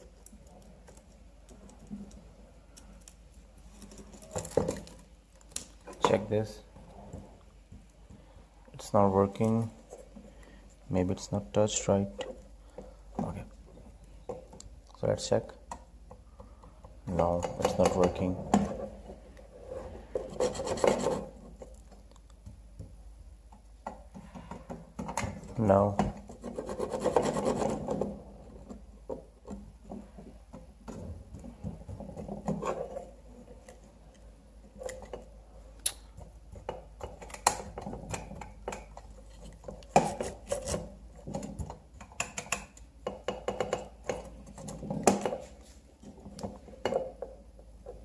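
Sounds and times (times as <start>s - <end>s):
metal clicks and knocks: 36.2s - 48.0s.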